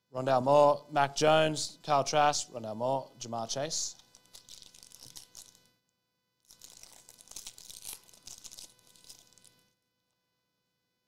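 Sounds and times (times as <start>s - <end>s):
cards and wrappers rustling: 4.1s - 5.7s, 6.5s - 9.6s.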